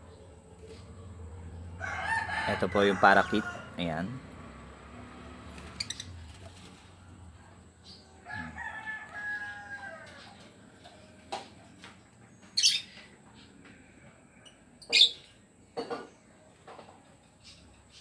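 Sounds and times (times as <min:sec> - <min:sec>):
lovebirds shrieking: 0:05.6 - 0:06.2, 0:12.6 - 0:13.0, 0:14.9 - 0:15.3.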